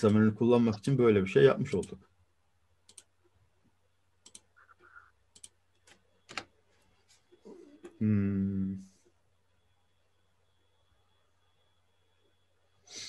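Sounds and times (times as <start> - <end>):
computer mouse clicks: 2.8 - 3.1, 4.2 - 6.5
person speaking: 7.5 - 9.0.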